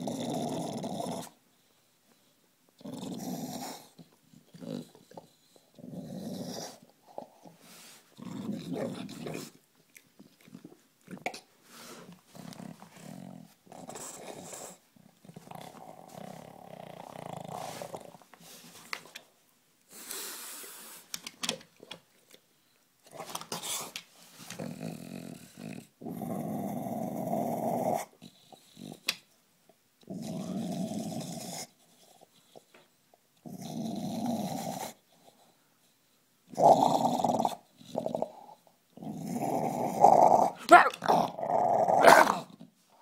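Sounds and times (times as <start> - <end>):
dog growling: 0.0 - 1.4, 2.8 - 7.4, 8.2 - 11.4, 12.3 - 18.2, 24.6 - 28.2, 36.5 - 42.7.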